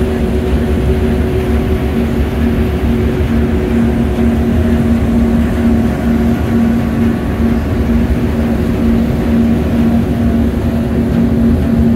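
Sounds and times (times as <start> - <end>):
boat diesel engine droning: 0.0 - 11.9
water rushing along hull: 0.0 - 11.9.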